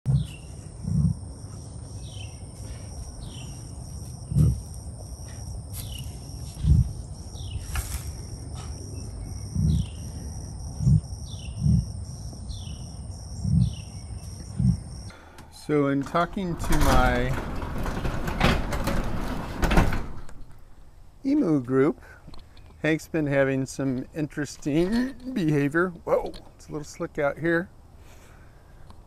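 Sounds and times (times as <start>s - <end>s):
steady high drone: 0.1s - 15.1s.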